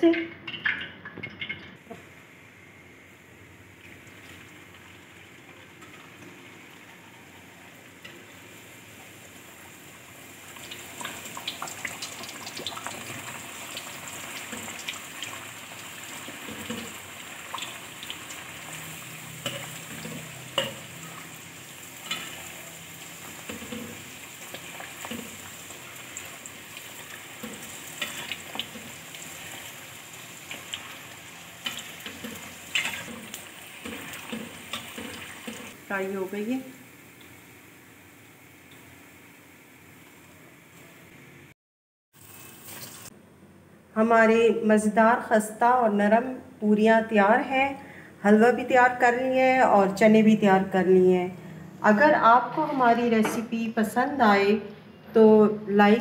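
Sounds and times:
dough sizzling in hot oil: 3.6 - 41.0, 42.2 - 43.2.

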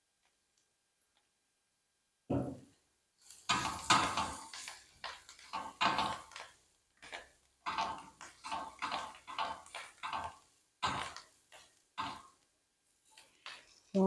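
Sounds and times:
spatula scraping frying pan: 3.2 - 12.4.

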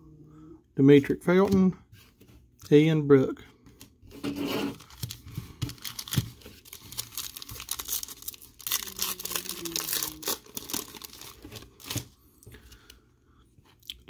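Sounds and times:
cellophane wrapper tearing and crinkling: 4.7 - 12.1.

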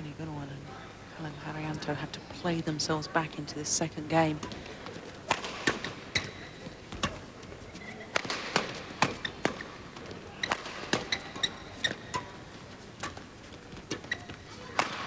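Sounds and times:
shoes squeaking on court: 4.3 - 15.0
badminton rackets hitting shuttlecock: 5.2 - 7.3, 8.1 - 9.8, 10.4 - 15.0.

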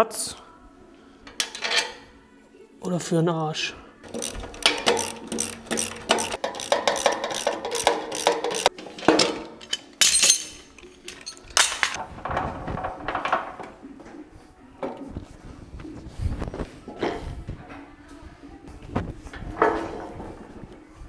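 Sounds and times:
metal parts clinking and clanking: 1.3 - 2.0, 4.0 - 13.7.

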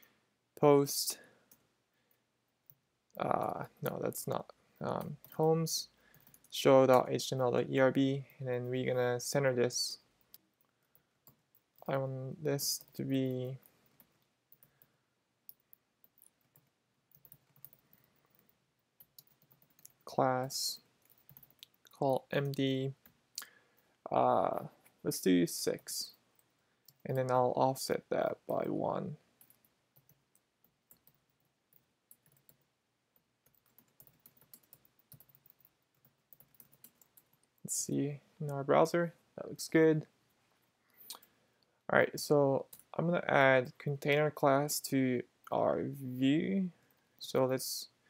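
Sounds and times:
keyboard typing clicks: 15.5 - 20.0, 21.0 - 23.2, 33.4 - 37.5.

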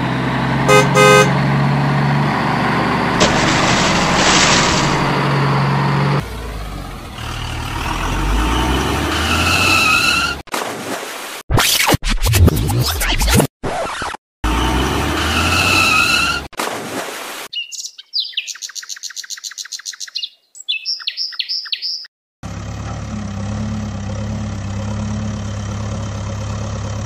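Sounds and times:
engine sound with rising tones: 0.0 - 10.4, 14.4 - 16.4, 22.4 - 27.0.

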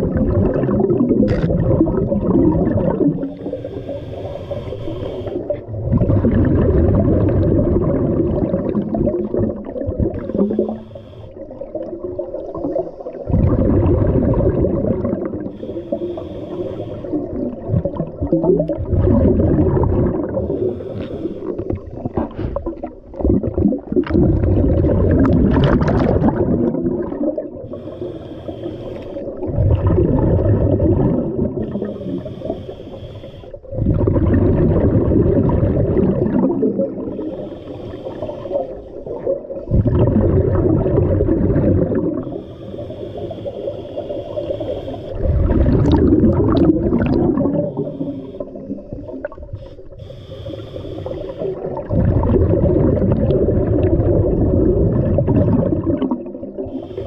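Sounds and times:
exhaled bubbles rushing: 0.0 - 3.9, 5.3 - 10.8, 11.4 - 15.5, 17.1 - 20.8, 21.5 - 27.8, 29.2 - 32.2, 33.6 - 42.4, 45.1 - 49.6, 51.0 - 56.8
regulator inhale hiss: 3.2 - 5.7, 10.2 - 11.7, 15.4 - 17.5, 20.3 - 22.6, 27.6 - 29.4, 31.6 - 33.7, 37.0 - 39.7, 42.2 - 45.4, 47.5 - 51.8, 56.5 - 57.0.

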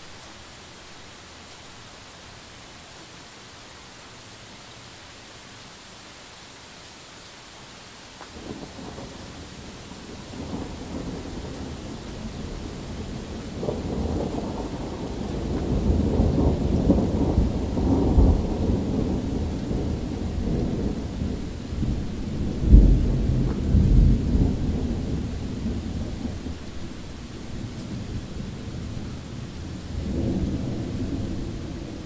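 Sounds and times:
steady rain: 0.0 - 32.0
thunder rolling: 10.2 - 32.0.

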